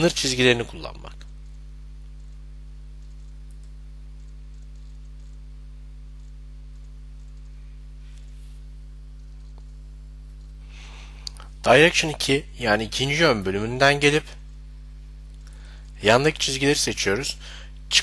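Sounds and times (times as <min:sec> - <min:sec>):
low electrical hum: 0:00.0 - 0:18.0
computer mouse clicks: 0:01.2 - 0:02.4, 0:03.0 - 0:05.4, 0:06.2 - 0:08.4, 0:09.2 - 0:10.6.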